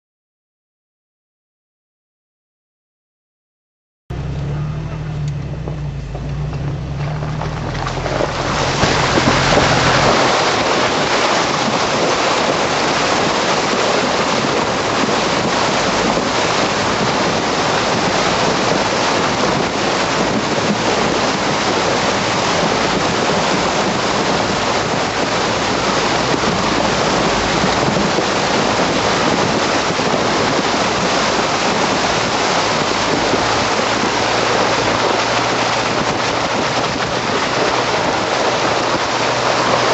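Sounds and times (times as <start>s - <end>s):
car engine hum: 4.1s - 39.9s
river water rushing against car: 4.2s - 39.9s.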